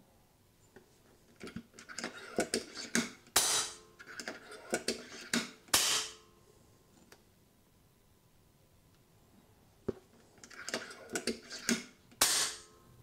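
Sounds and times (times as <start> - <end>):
air rifle shots: 3.4 - 3.8, 5.7 - 6.2, 12.2 - 12.7.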